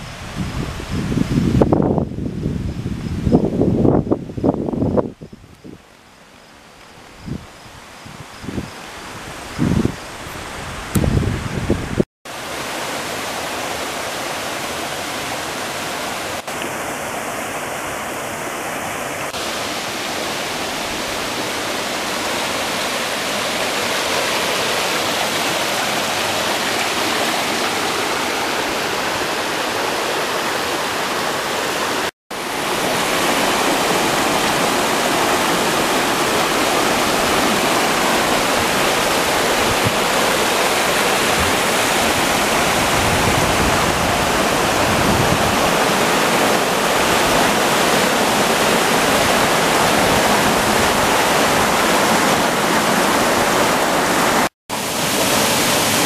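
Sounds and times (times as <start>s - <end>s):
river water rushing over rocks: 11.9s - 56.0s.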